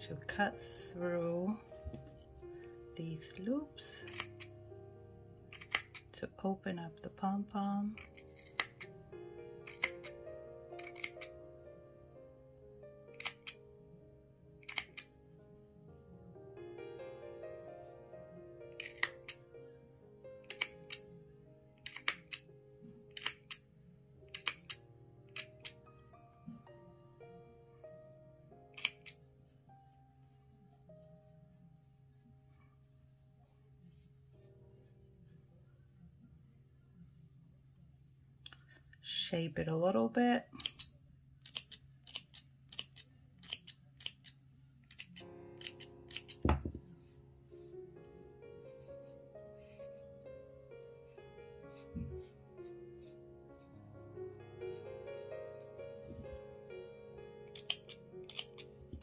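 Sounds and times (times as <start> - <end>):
soft background music: 0.0 - 59.0
scissors snipping yarn: 3.9 - 4.6, 5.5 - 6.2, 7.9 - 8.9, 9.6 - 10.2, 10.8 - 11.4, 13.1 - 13.6, 14.6 - 15.1, 18.8 - 19.4, 20.4 - 21.1, 21.8 - 22.5, 23.1 - 23.6, 24.3 - 25.8, 28.7 - 29.2, 40.6 - 46.9, 57.5 - 59.0.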